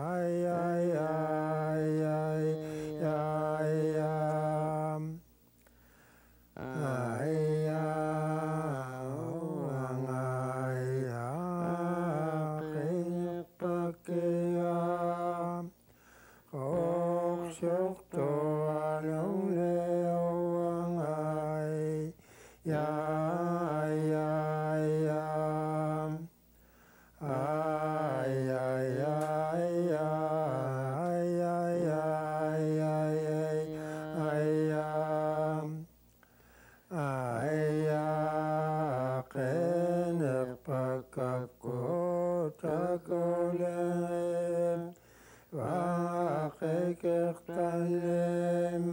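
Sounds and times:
man singing: 0:06.6 - 0:15.8.

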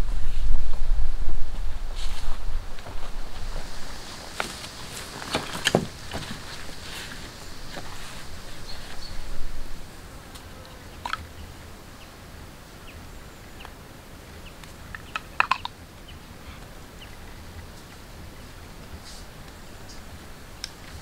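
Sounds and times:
poles rustling on leaf litter: 0:00.0 - 0:10.6.

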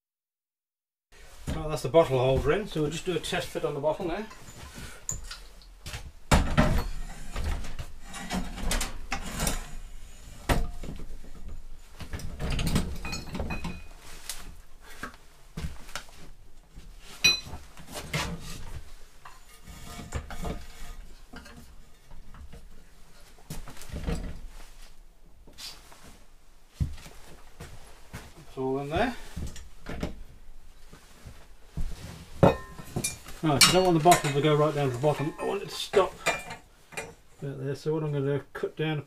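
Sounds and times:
gas bottle clanking against steel frame: 0:12.4 - 0:14.0, 0:36.0 - 0:37.2.

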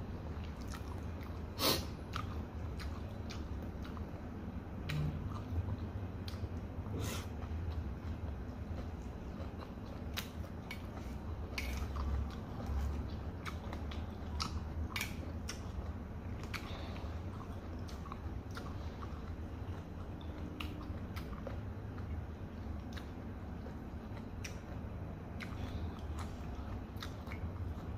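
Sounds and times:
chewing noodles: 0:00.3 - 0:27.9
wet mouth smacking clicks: 0:14.4 - 0:15.6.

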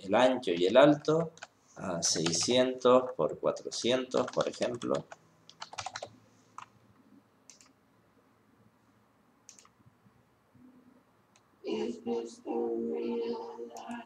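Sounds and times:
keyboard typing: 0:00.5 - 0:02.6, 0:03.6 - 0:06.8, 0:07.5 - 0:07.8, 0:09.5 - 0:09.7
mouse clicks: 0:07.5 - 0:07.8, 0:09.5 - 0:09.7.

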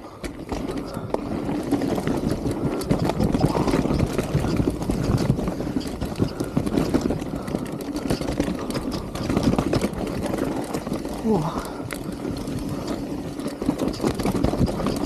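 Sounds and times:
bike knocking and rattling: 0:00.0 - 0:15.0
bike tyres rumbling on dirt: 0:00.0 - 0:15.0.

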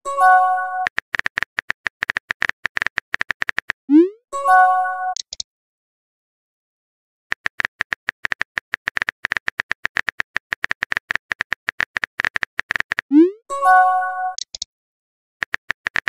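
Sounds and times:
keyboard typing clicks: 0:00.8 - 0:03.8, 0:05.1 - 0:05.4, 0:07.3 - 0:13.3, 0:14.3 - 0:14.7, 0:15.4 - 0:16.0.

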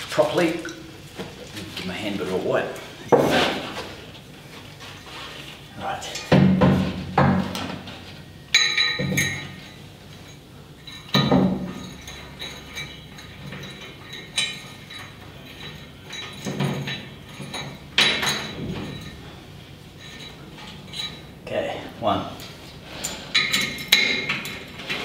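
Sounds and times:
metal parts clinking: 0:08.5 - 0:19.3, 0:19.9 - 0:21.4, 0:22.9 - 0:25.0.

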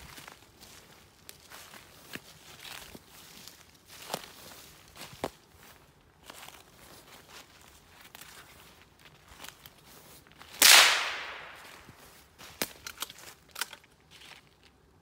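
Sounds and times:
rustling footsteps: 0:00.0 - 0:15.0
gunshot: 0:10.6 - 0:11.8.

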